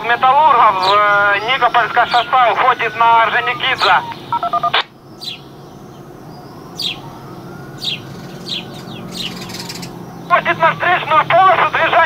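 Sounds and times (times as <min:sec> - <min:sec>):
radio electronic beeps: 0:00.0 - 0:05.0
radio squelch noise: 0:00.0 - 0:05.0, 0:10.3 - 0:12.0
birds chirping: 0:00.0 - 0:12.0.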